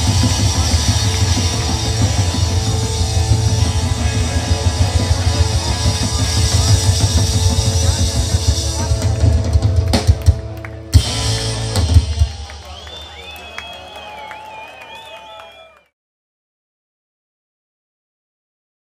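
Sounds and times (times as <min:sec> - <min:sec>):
live rock band playing: 0:00.0 - 0:14.4.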